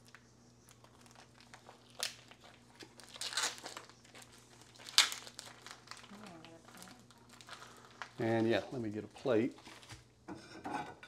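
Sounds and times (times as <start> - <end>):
plastic pouches crinkling: 0.0 - 10.1
plastic ripping: 0.7 - 8.7.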